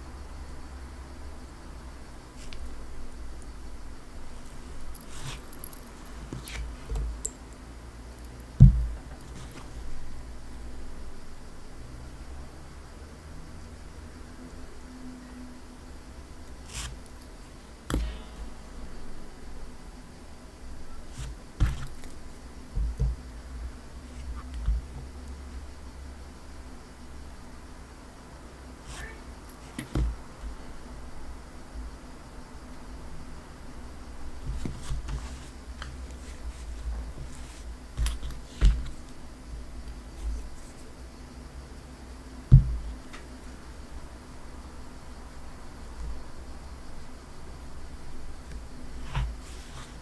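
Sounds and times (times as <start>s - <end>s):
low handling noise: 4.3s - 10.2s, 20.7s - 25.6s
loud low thump: 8.6s - 9.0s.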